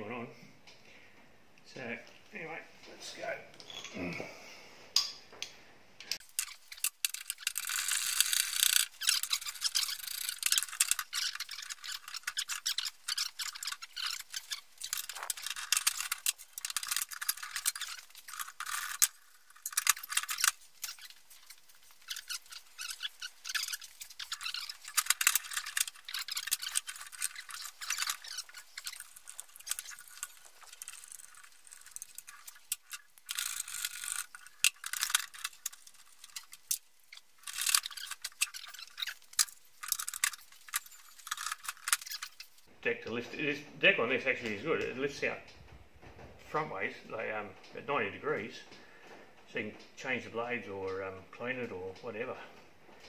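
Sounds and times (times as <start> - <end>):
small metal parts rattling: 6.1 - 42.7.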